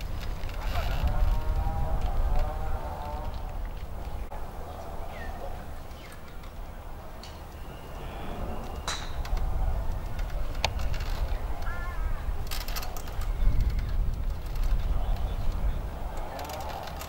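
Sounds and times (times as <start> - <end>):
steady low rumble: 0.0 - 16.9
faint distant voices: 0.0 - 17.0
bird calls: 4.0 - 14.0.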